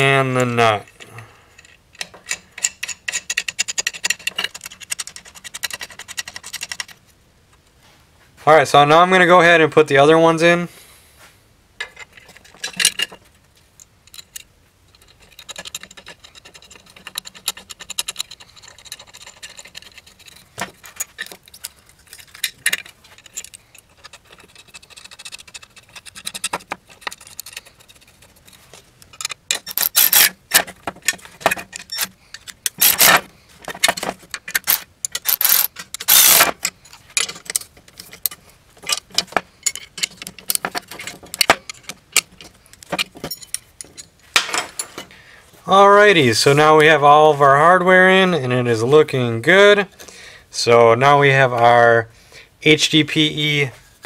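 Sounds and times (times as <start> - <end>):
bolts and nuts clinking: 0.3 - 7.6, 11.8 - 45.2
wrenches clicking on nuts: 0.8 - 7.0, 13.8 - 44.2.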